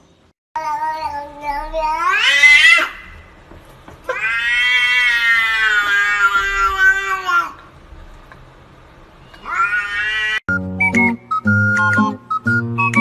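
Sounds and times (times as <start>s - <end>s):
cat yowling: 0.9s - 3.2s, 4.1s - 7.6s, 9.4s - 10.4s.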